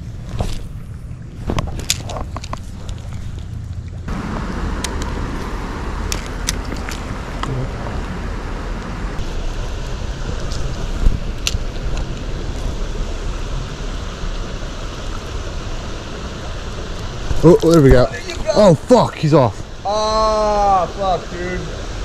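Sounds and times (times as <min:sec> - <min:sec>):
wind on microphone: 0:00.0 - 0:14.9
flowing river water: 0:00.0 - 0:22.0.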